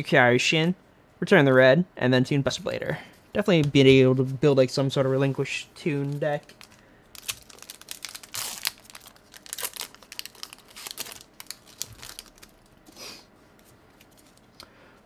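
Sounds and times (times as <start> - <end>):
foil wrapper crinkling and tearing: 6.0 - 12.8.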